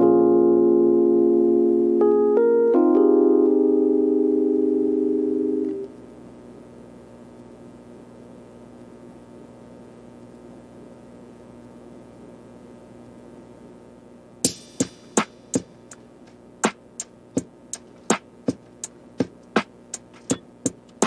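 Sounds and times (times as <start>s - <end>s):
low steady hum: 0.0s - 21.0s
clicky percussion beat: 14.4s - 21.0s.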